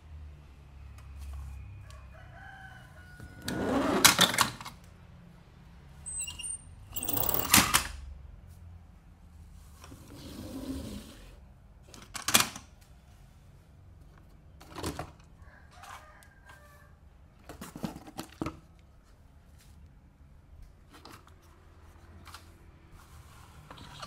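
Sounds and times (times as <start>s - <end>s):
soft scraping rustle: 9.4s - 11.4s, 19.0s - 20.0s, 20.8s - 24.0s.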